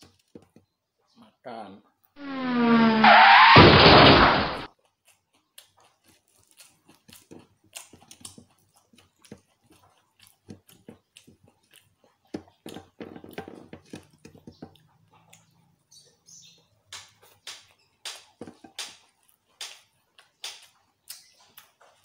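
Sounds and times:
chewing: 4.7 - 16.2, 17.1 - 22.0
wet smacks of eating with fingers: 4.8 - 13.0, 16.9 - 22.0.

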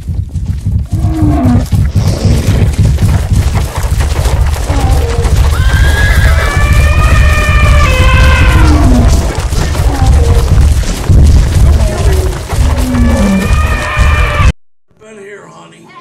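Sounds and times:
pounding hooves stampede: 0.0 - 14.6
animal calls: 4.6 - 10.8, 11.5 - 14.5.

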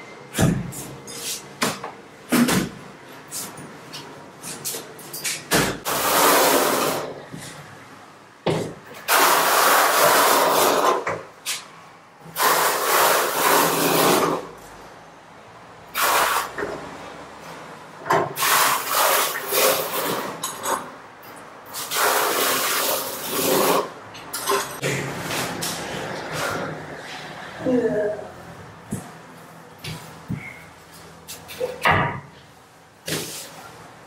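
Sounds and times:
trowel scraping adhesive on concrete: 12.4 - 14.4, 21.8 - 23.9.

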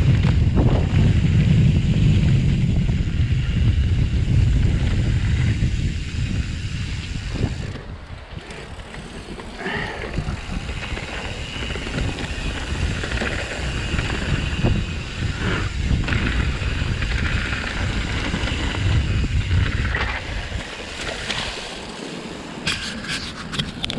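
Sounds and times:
wind buffeting microphone: 0.0 - 21.8
bike rattling: 0.0 - 23.9
tyres rumbling over dirt and rocks: 7.5 - 22.0.

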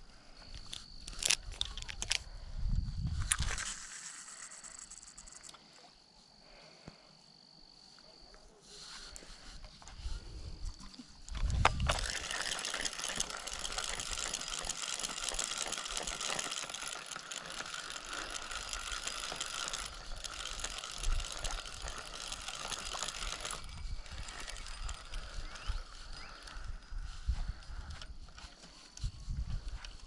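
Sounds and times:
fishing reel clicking: 0.6 - 2.3, 3.2 - 5.6, 11.2 - 28.1.

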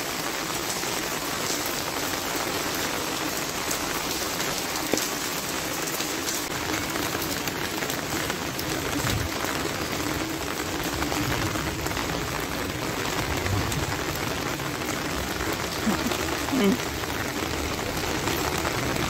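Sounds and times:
steady rain falling: 0.0 - 19.0.

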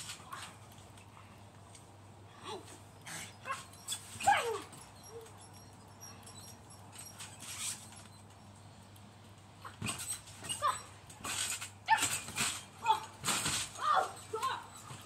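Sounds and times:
rustling: 2.6 - 8.4, 9.7 - 15.0
dog whining: 3.1 - 7.2, 9.6 - 10.9.

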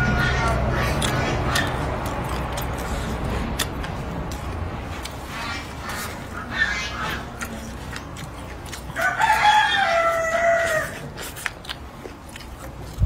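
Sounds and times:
rooster crowing: 9.0 - 11.1.

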